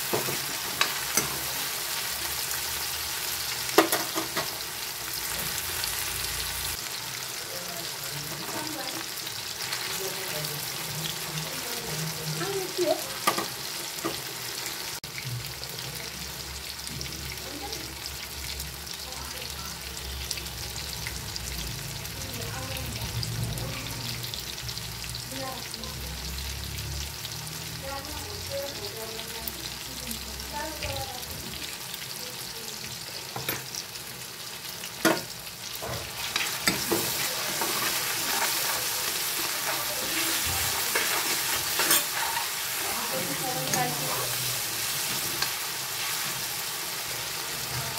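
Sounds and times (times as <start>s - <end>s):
vegetables sizzling in oil: 0.0s - 47.9s
spatula knocking and scraping pan: 35.0s - 43.9s.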